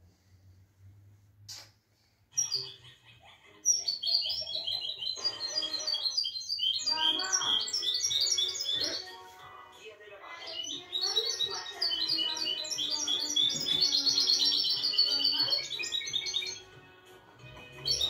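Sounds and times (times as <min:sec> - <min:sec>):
songbird chirping and twittering: 0:02.3 - 0:18.0.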